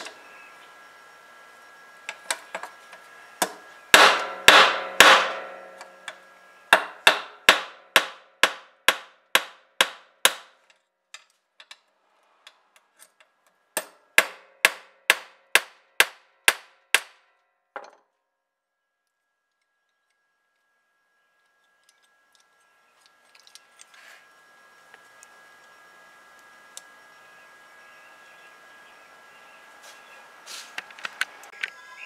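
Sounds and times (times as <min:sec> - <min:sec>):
hammer blows on metal: 0:03.4 - 0:05.9.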